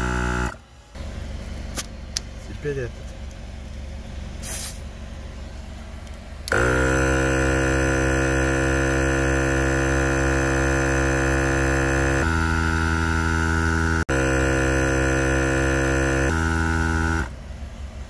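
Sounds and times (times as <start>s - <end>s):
air compressor humming: 0.0s - 17.4s
air hissing: 4.4s - 4.9s.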